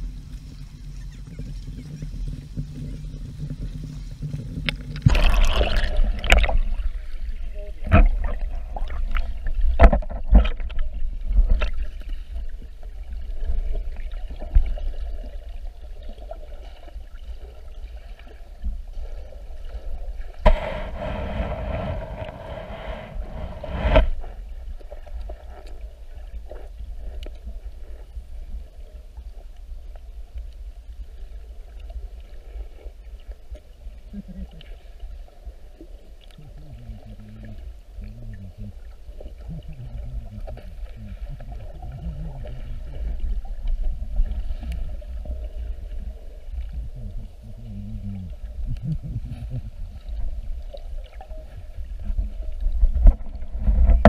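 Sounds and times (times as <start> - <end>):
muffled water sloshing and splashing: 0.0 - 54.0
low rumble: 2.3 - 14.7, 20.0 - 29.0.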